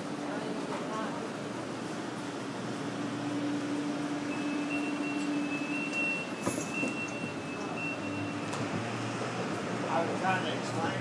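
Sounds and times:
light rail train humming: 0.0s - 11.0s.

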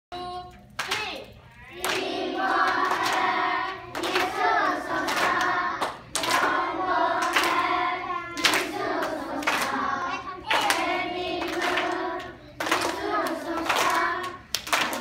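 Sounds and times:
children singing in unison: 1.8s - 15.0s
sharp hand claps: 10.5s - 15.0s.

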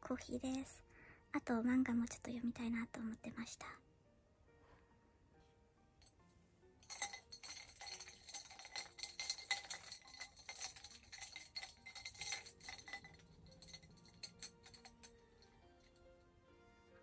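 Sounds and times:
spoon clinking in a cup: 6.8s - 16.0s.

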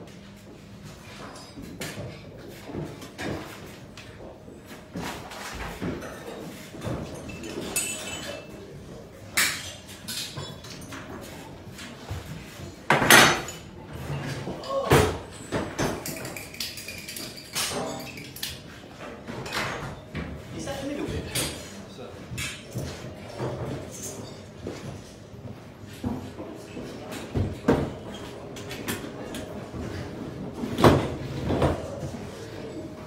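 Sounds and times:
metal tools and pipe clattering: 5.6s - 8.6s, 13.0s - 18.7s.

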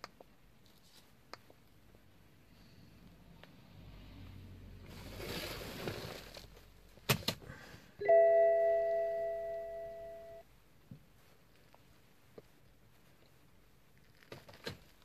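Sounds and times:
rustling: 0.2s - 2.0s, 4.9s - 7.1s, 11.0s - 15.0s
electronic chime: 8.0s - 10.4s.

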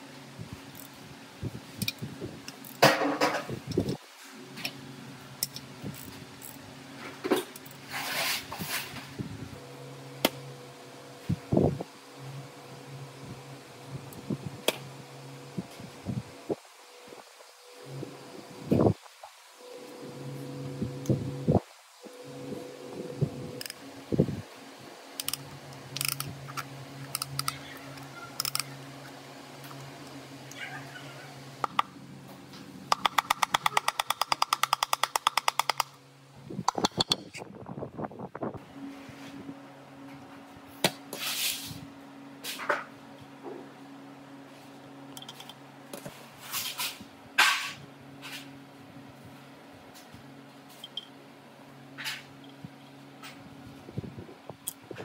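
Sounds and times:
steady low hum: 0.0s - 55.0s
low hum: 9.0s - 33.4s.

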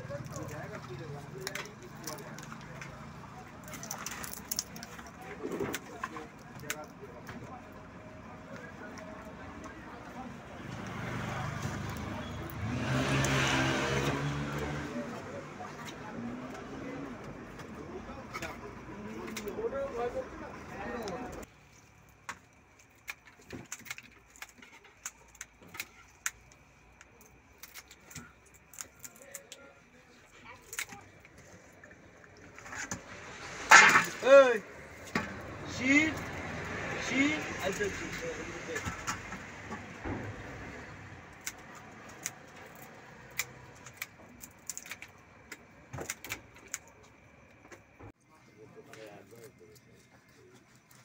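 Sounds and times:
scissors snipping prawn shells: 22.2s - 29.6s, 41.3s - 47.0s.

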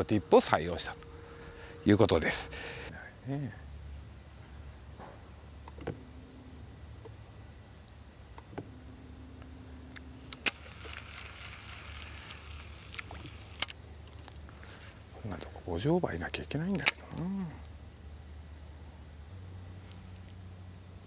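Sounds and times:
insects trilling: 0.0s - 21.0s
fishing reel clicks and hums: 9.4s - 14.1s.

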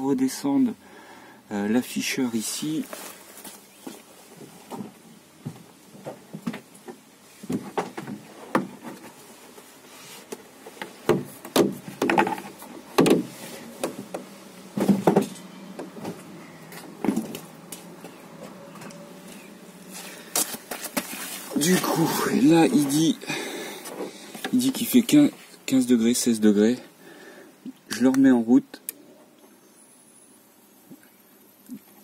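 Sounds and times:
knocks taps and scrapes: 10.2s - 16.2s.

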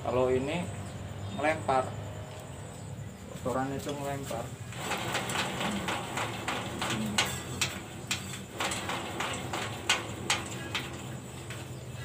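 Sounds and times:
metallic clicks and knocks: 4.7s - 12.0s.

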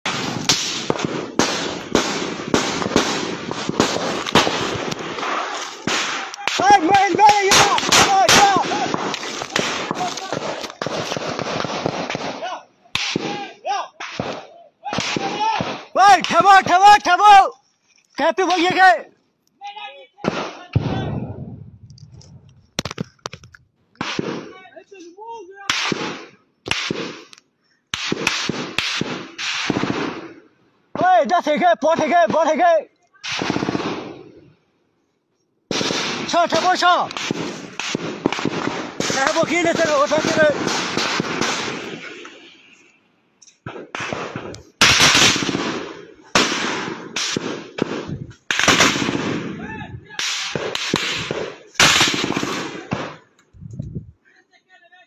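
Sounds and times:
gunshots with echo: 0.0s - 16.8s, 35.7s - 42.2s, 43.7s - 53.2s.

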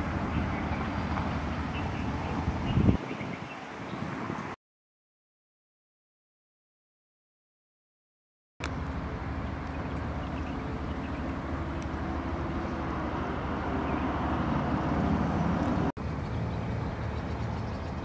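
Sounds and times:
vehicle engine and road rumble: 0.0s - 4.6s, 8.6s - 18.0s.

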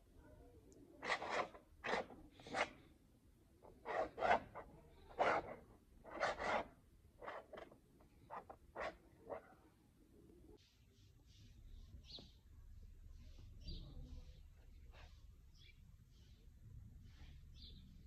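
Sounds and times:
paint scraper scraping canvas: 1.0s - 2.9s, 3.6s - 9.5s.

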